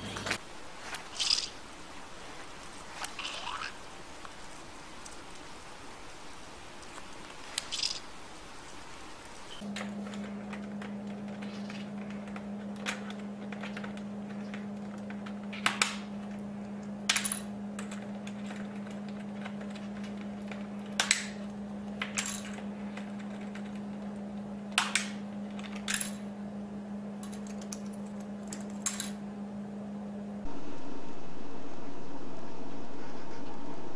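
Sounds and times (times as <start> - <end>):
low electrical hum: 0.0 - 33.9
parrot pecking keyboard keys: 6.8 - 9.1.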